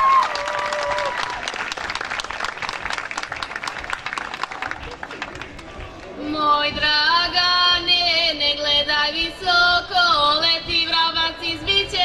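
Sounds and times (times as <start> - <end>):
women singing unaccompanied: 6.2 - 12.0.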